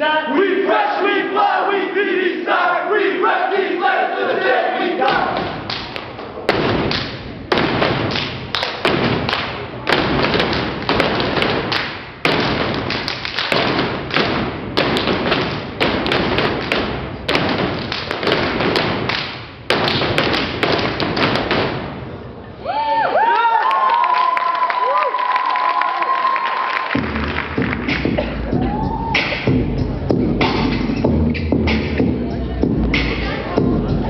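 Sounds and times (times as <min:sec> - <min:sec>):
group stomping and clapping: 0:05.0 - 0:22.0, 0:23.7 - 0:29.6.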